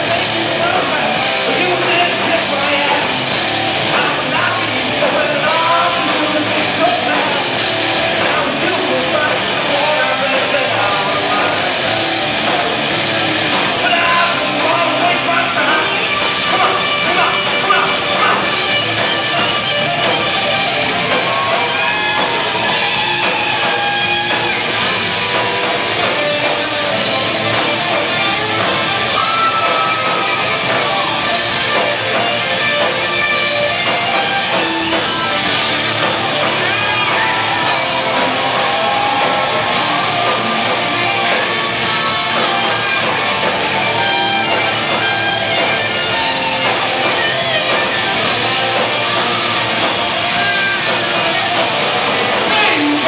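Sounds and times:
distorted electric guitars: 0.0s - 53.0s
drums and cymbals: 0.0s - 53.0s.

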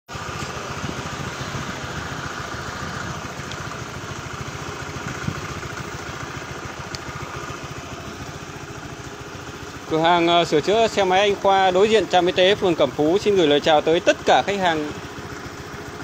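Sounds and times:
scooter engine idling: 0.1s - 16.0s.

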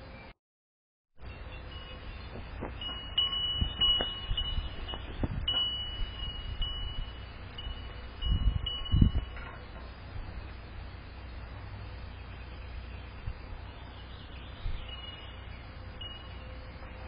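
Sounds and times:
metal wind chime ringing: 2.8s - 9.7s, 14.9s - 17.0s.

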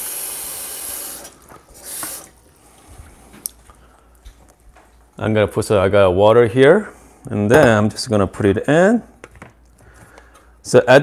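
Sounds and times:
water running from tap: 0.0s - 2.3s.

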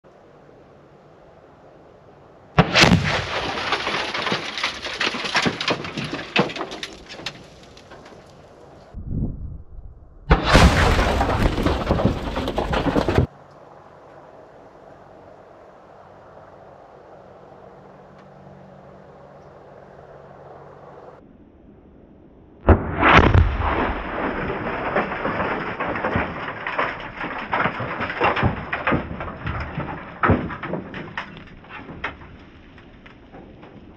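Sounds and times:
explosive blast: 2.6s - 3.8s, 10.2s - 12.8s, 22.6s - 26.5s
sharp loud crack: 2.6s - 4.4s, 10.2s - 12.4s, 22.6s - 26.4s
explosion: 2.6s - 7.3s, 9.0s - 13.3s, 22.6s - 32.2s
debris falling with small knocks: 2.6s - 8.6s, 10.3s - 13.3s, 23.3s - 33.9s.

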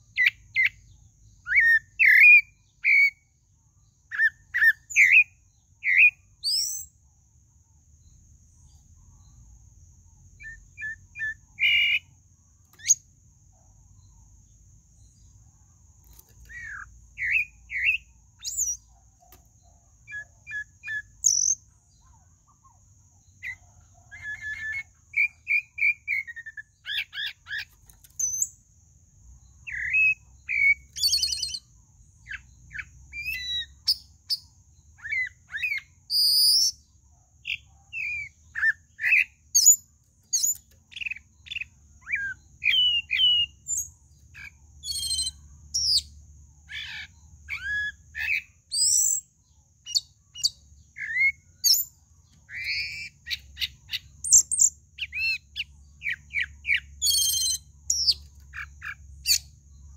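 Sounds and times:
thrush singing whistled phrases: 40.4s - 43.8s.

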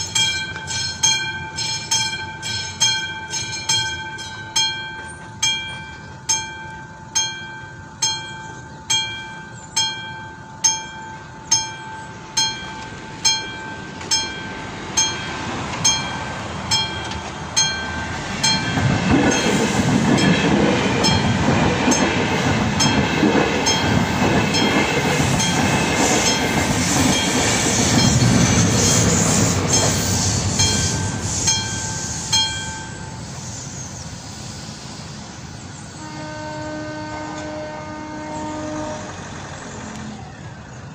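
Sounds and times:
level-crossing bell ringing: 0.0s - 28.9s, 29.6s - 33.3s
passenger train passing: 0.0s - 40.9s.

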